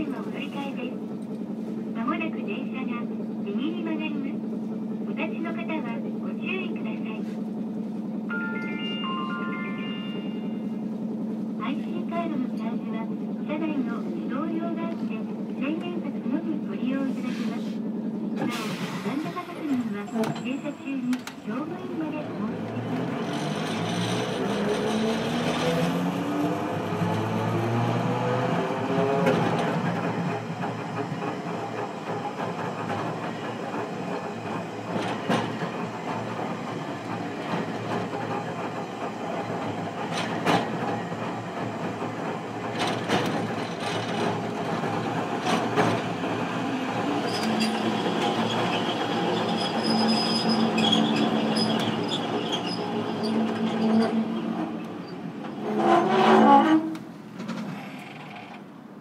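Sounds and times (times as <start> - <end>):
tram motor whine: 0.0 - 58.8
tram wheels knocking: 21.2 - 55.6.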